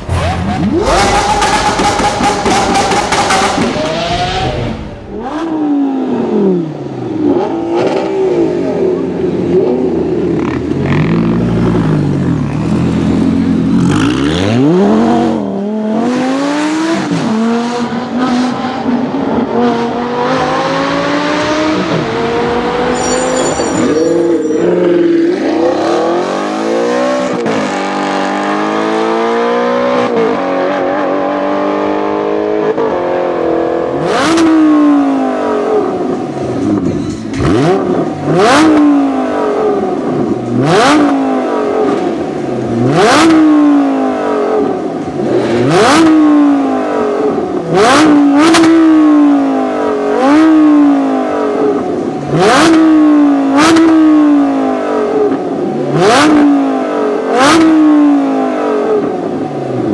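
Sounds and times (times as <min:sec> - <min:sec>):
sports car accelerating through gears: 0:23.9 - 0:36.8, 0:37.4 - 0:59.9
parked car engine revving: 0:33.9 - 0:59.9.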